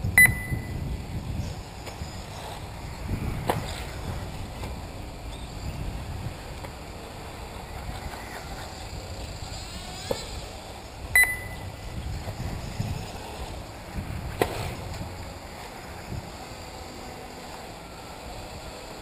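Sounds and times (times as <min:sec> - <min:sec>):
short electronic beep: 0:00.2 - 0:00.8, 0:11.2 - 0:11.6
electric rc car motors whining: 0:00.6 - 0:19.0.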